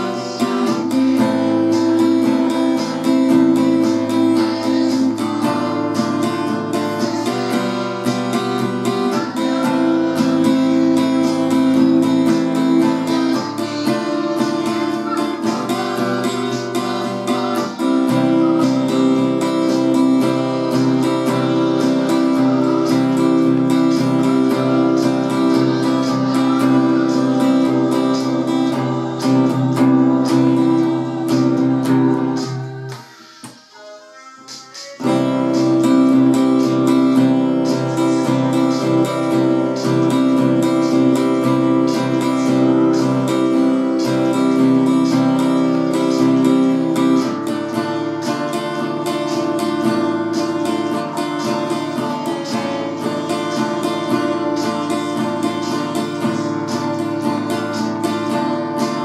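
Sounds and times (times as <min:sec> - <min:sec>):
acoustic guitar strumming: 0:00.0 - 0:59.0.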